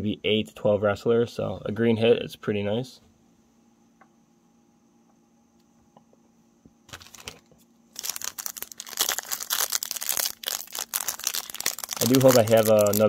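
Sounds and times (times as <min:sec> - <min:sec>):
wrapper crinkling and tearing: 0:06.9 - 0:13.0.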